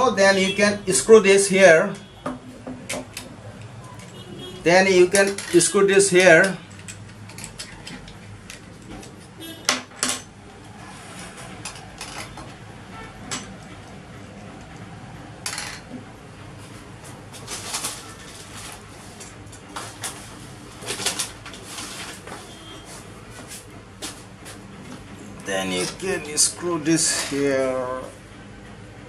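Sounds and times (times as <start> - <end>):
plastic parts clicking and knocking: 6.4 - 10.3.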